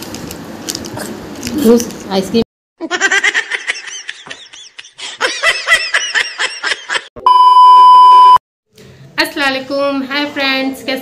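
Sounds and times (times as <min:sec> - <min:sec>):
high-pitched cackling laughter: 0:02.8 - 0:07.1
test-tone beep: 0:07.2 - 0:08.4.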